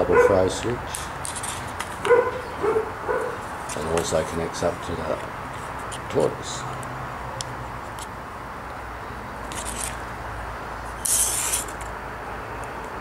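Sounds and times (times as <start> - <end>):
scraping rustles: 0.1 - 2.4, 9.5 - 10.0, 11.0 - 11.9.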